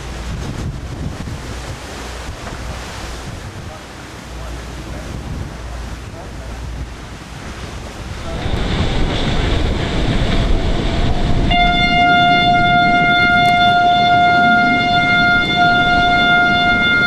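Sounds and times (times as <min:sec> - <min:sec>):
sea rushing: 0:00.0 - 0:17.0
wind: 0:00.0 - 0:17.0
horn steady note: 0:11.3 - 0:17.0.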